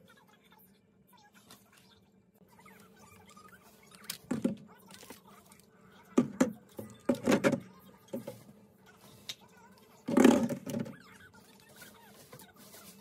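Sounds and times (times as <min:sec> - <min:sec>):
plastic bottles clunking on wire racks: 0:06.2 - 0:08.4, 0:10.1 - 0:11.0.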